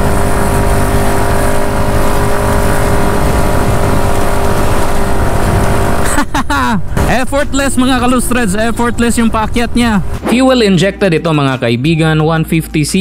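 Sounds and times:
scooter engine pulling uphill: 0.0s - 7.0s.

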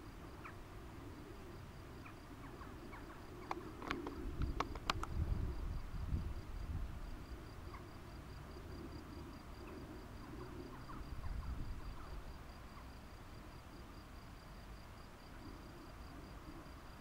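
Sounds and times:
insect chirping: 0.0s - 17.0s
sharp clicks: 3.4s - 5.2s.

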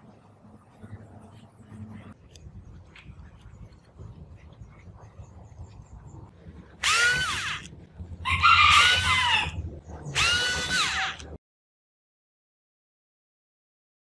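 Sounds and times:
electric screwdriver whirring: 6.8s - 7.7s, 10.2s - 11.2s.

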